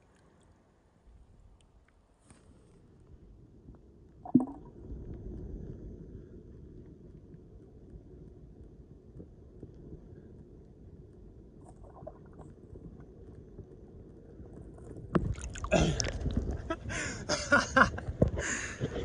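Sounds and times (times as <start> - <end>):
muffled underwater rumble: 3.1 - 19.0
water splashing against camera: 4.3 - 4.7, 15.1 - 16.8.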